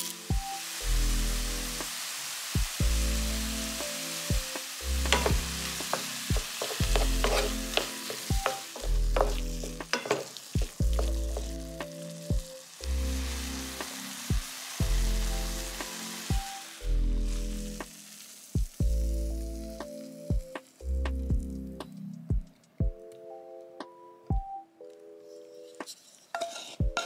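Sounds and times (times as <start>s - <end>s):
vegetables sizzling in a frying pan: 0.0s - 20.9s
utensil scraping a pan: 5.1s - 10.4s, 25.8s - 27.0s.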